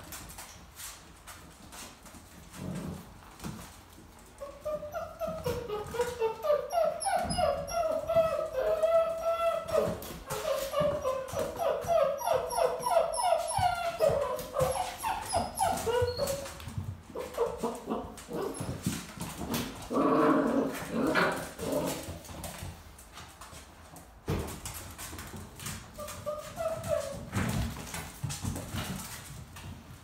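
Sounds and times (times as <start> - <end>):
puppies whining and yipping: 4.4 - 22.1, 25.6 - 29.0.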